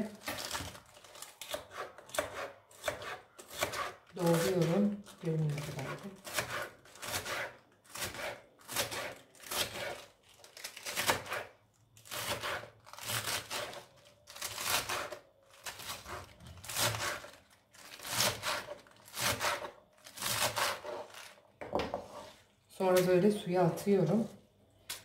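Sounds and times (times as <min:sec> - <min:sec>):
knife chopping spinach on a board: 0:01.4 - 0:04.7, 0:05.8 - 0:10.1, 0:12.1 - 0:15.2, 0:18.0 - 0:21.1.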